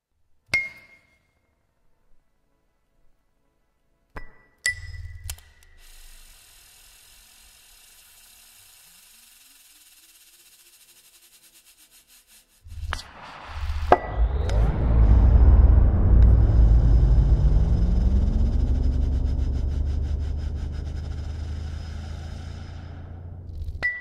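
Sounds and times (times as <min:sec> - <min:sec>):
noisy electronic burst: 0:12.7 - 0:23.8
faint rising tone: 0:12.7 - 0:24.0.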